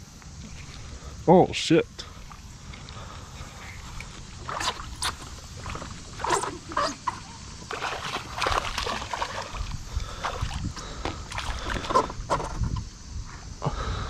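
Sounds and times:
fish splashing in water: 0:04.0 - 0:12.2.

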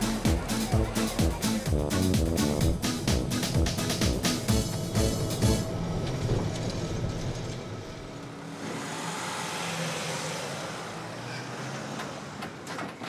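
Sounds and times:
street traffic noise: 0:00.0 - 0:13.0
vehicle passing: 0:02.3 - 0:12.4.

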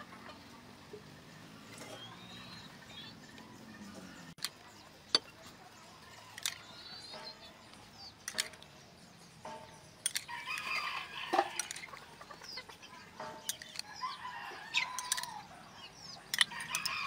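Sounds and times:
chickens clucking: 0:00.0 - 0:17.0
rooster crowing: 0:10.3 - 0:11.7, 0:13.9 - 0:15.6, 0:16.5 - 0:17.0.

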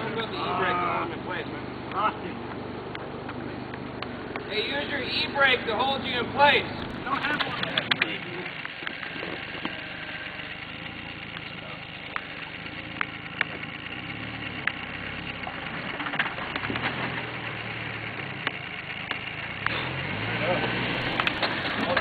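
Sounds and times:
engine running at low revs: 0:00.0 - 0:22.0
sharp clicks: 0:11.3 - 0:17.5.

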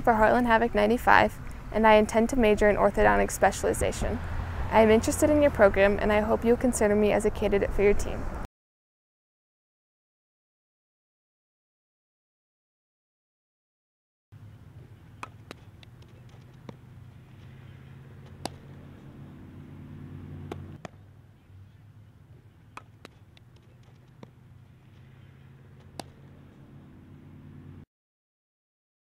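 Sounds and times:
steady low hum: 0:14.4 - 0:27.8
softball being hit and caught: 0:15.2 - 0:17.6, 0:18.2 - 0:18.8, 0:20.4 - 0:21.0, 0:22.7 - 0:24.4, 0:25.8 - 0:26.4.

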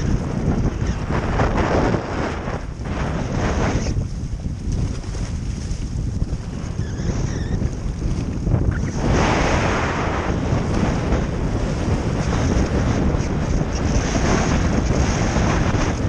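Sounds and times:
gusty wind buffeting microphone: 0:00.0 - 0:16.0.

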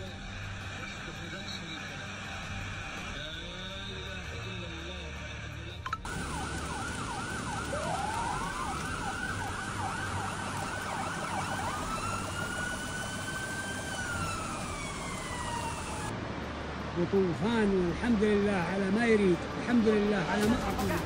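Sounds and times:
fast sweeping siren: 0:06.1 - 0:16.1
slow rising siren: 0:06.1 - 0:16.1
steady rushing noise: 0:06.1 - 0:21.0.

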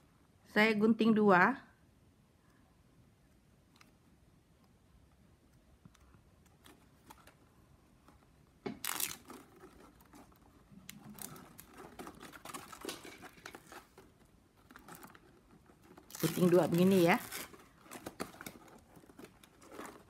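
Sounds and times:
plastic strap crinkling: 0:05.5 - 0:20.0.

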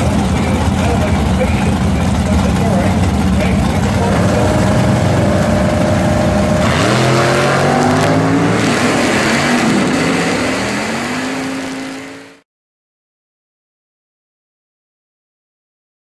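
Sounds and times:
drag car engines accelerating: 0:00.0 - 0:12.4.

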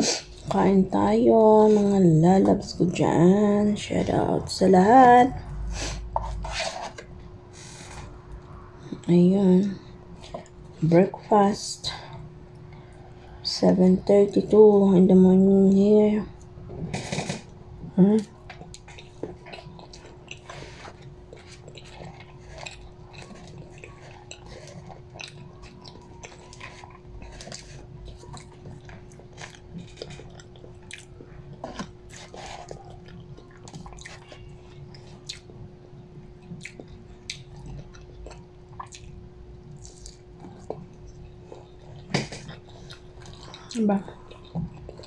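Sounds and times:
faint hum: 0:00.0 - 0:45.0
plastic forks scraping paper box: 0:06.2 - 0:07.0
person chewing food: 0:09.8 - 0:10.9, 0:16.3 - 0:45.0.

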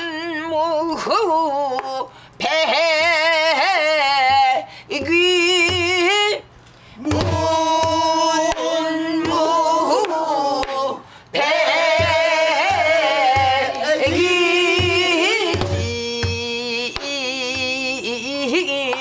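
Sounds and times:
woman singing with wavering voice: 0:00.0 - 0:19.0
barrel drum struck with stick: 0:12.0 - 0:16.4.

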